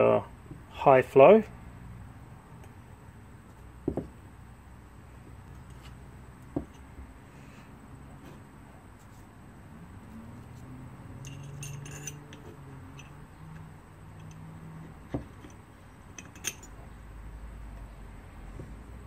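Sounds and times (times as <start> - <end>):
dull knock: 3.8 - 4.2.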